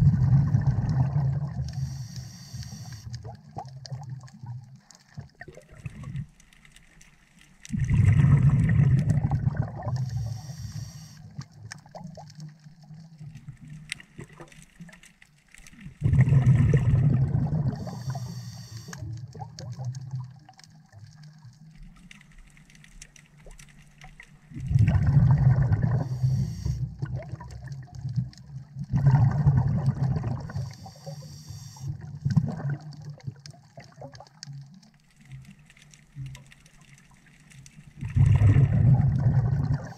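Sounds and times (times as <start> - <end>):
exhaled bubbles rushing underwater: 0.0 - 6.4, 7.7 - 14.6, 15.8 - 22.1, 24.0 - 35.6, 36.2 - 39.9
faint high hiss: 10.0 - 11.3, 17.9 - 19.0.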